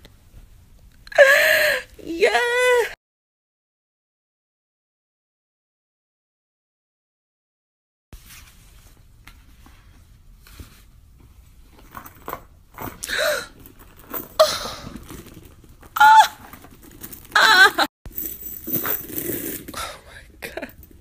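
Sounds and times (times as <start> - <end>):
woman squealing excitedly: 1.2 - 3.0, 16.0 - 16.5, 17.4 - 17.9.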